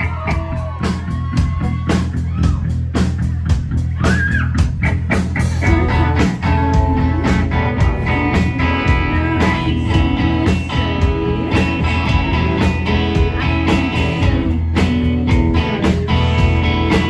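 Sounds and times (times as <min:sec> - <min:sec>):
bass guitar: 0:00.0 - 0:17.0
drum kit beat: 0:00.0 - 0:17.0
electric guitars: 0:03.4 - 0:17.0.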